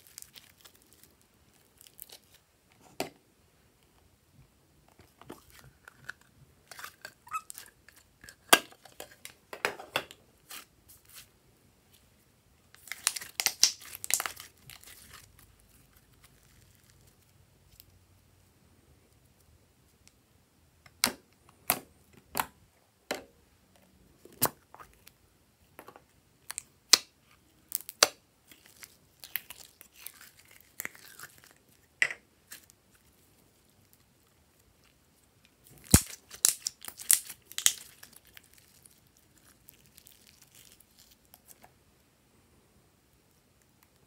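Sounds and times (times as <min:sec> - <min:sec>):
slime popping and crackling: 0:00.0 - 0:02.4, 0:12.8 - 0:17.2, 0:27.7 - 0:31.8, 0:35.6 - 0:41.6.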